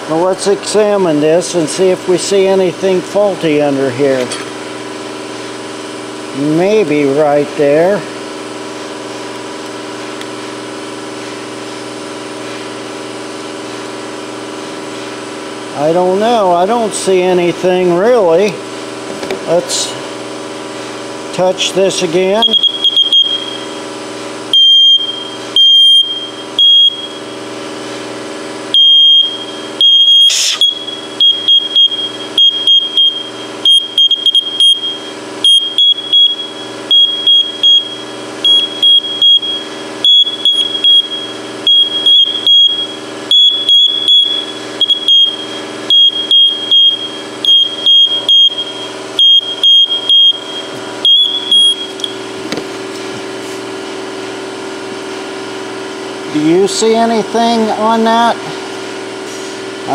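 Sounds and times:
smoke detector beeping: 0:22.2 - 0:27.5, 0:28.7 - 0:52.4.

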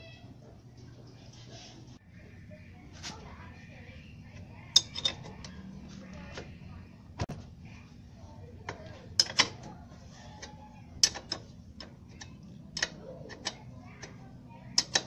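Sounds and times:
low steady hum: 0:00.0 - 0:15.0
wrench clinking on metal: 0:04.7 - 0:05.6, 0:08.7 - 0:14.2, 0:14.8 - 0:15.0.

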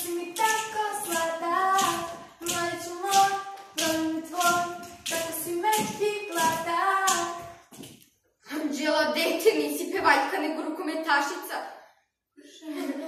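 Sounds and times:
young voices singing together: 0:00.0 - 0:07.8
hand claps: 0:00.0 - 0:08.1.

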